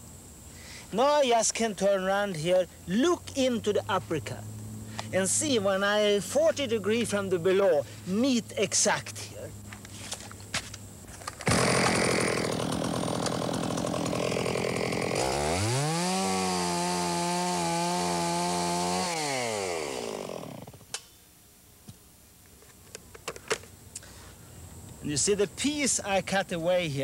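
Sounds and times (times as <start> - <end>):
chainsaw cutting tree trunk: 11.4 - 20.9.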